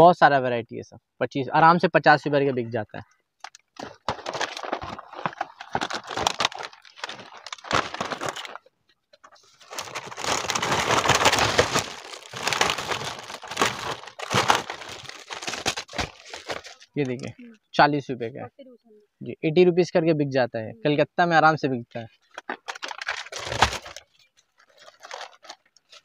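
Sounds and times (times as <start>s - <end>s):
plastic packaging crinkling: 3.4s - 17.3s, 22.2s - 26.0s.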